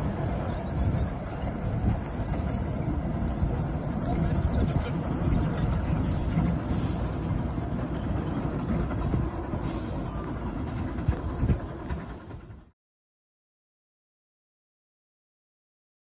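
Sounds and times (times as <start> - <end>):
train wheels clattering over rails: 0.0 - 12.7.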